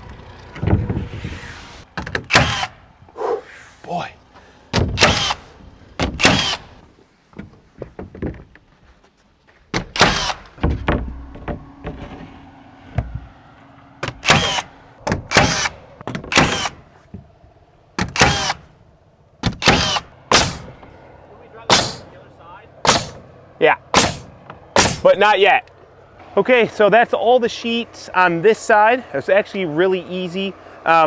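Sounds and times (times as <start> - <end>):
nail gun firing: 2.0 - 2.8, 4.7 - 6.7, 9.8 - 10.9, 14.0 - 16.8, 18.0 - 18.7, 19.4 - 20.7, 21.7 - 22.0, 22.9 - 23.2, 24.0 - 25.1.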